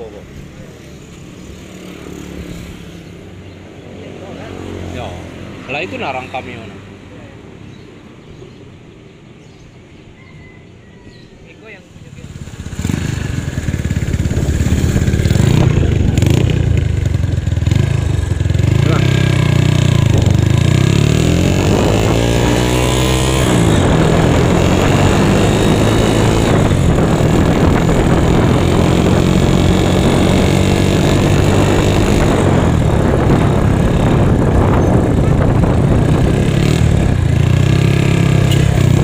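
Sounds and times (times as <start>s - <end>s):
scooter engine riding: 11.9s - 39.0s.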